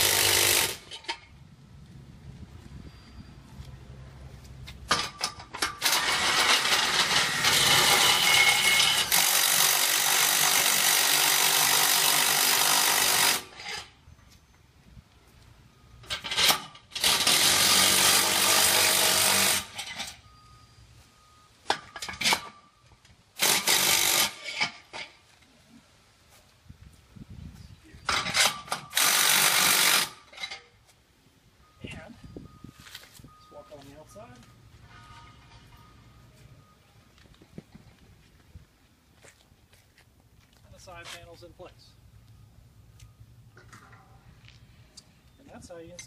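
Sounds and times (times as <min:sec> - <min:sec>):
impact driver running: 0:00.0 - 0:01.1, 0:05.7 - 0:13.7, 0:16.2 - 0:20.0, 0:23.4 - 0:24.6, 0:28.4 - 0:30.2.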